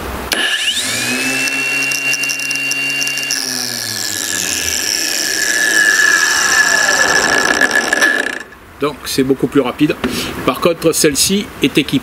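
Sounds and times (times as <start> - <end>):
angle grinder running steadily: 0.3 - 8.6
angle grinder whine: 0.3 - 8.6
grinder spinning down: 0.3 - 8.6.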